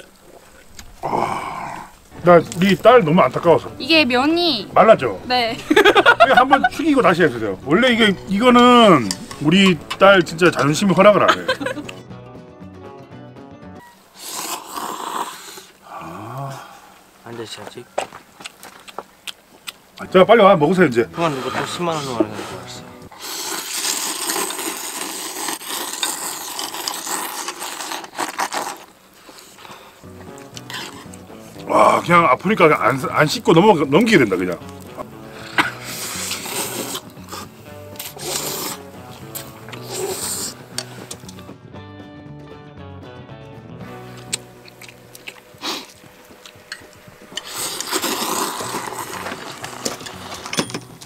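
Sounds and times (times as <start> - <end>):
noodles being slurped: 14.2 - 15.8, 21.2 - 32.1, 35.3 - 41.3, 47.3 - 50.5.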